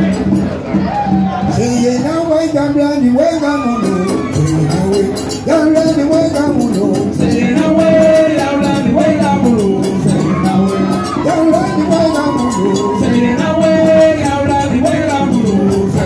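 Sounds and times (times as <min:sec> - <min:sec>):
conga drums: 0:00.0 - 0:16.0
drum kit rhythm: 0:00.0 - 0:16.0
chanted group singing: 0:03.6 - 0:16.0.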